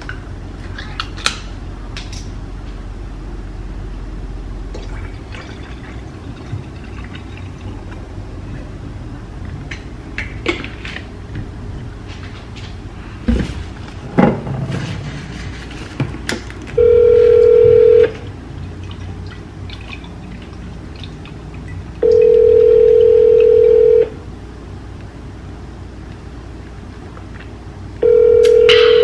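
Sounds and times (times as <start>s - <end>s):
phone ringback tone: 16.8s - 18.3s, 22.0s - 24.2s, 28.0s - 29.0s.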